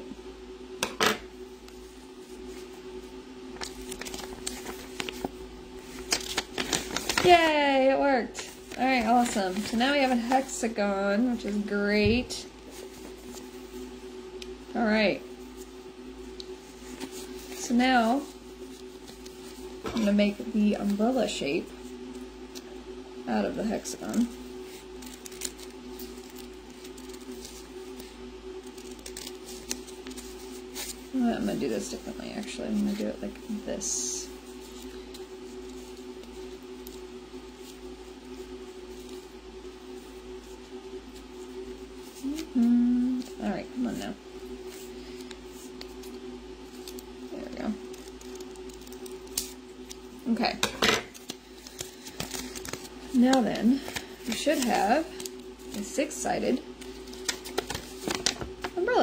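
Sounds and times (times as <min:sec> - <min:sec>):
low background hum: 0:00.0 - 0:59.0
paper rustling and crackling: 0:01.7 - 0:14.0, 0:14.8 - 0:22.7, 0:23.3 - 0:59.0
scissors snipping paper: 0:46.7 - 0:50.0.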